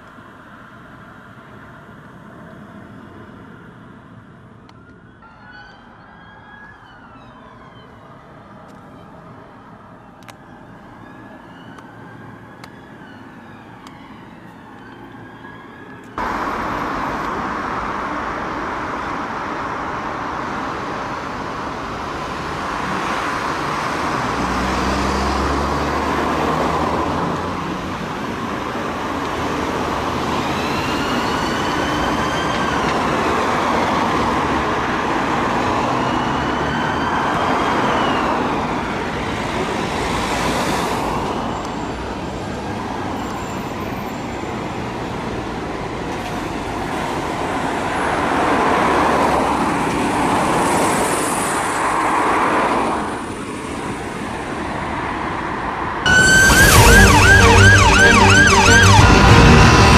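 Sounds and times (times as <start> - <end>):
passing road traffic: 0.0 - 59.9
emergency vehicle siren: 3.3 - 50.5, 56.0 - 59.9
deep engine rumble: 56.1 - 59.9.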